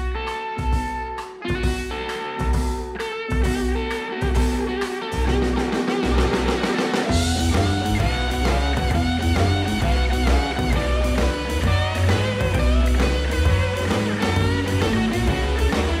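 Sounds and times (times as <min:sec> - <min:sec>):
guitar bass and drums music: 0:00.0 - 0:16.0.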